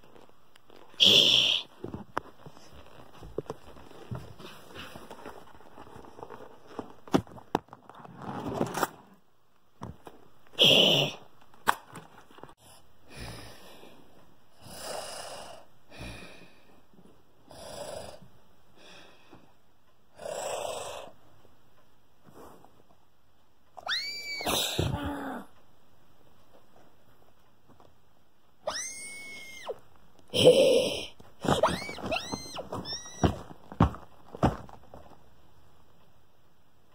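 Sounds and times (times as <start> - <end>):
person pretend snoring: 14.6 - 16.4, 17.5 - 18.3, 20.1 - 21.2.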